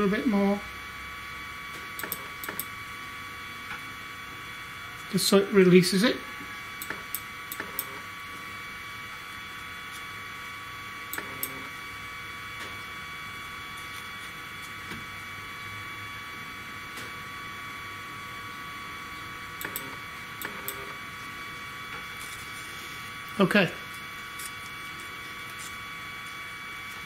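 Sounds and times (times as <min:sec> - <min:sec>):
high-pitched electrical whine: 0:00.0 - 0:27.0.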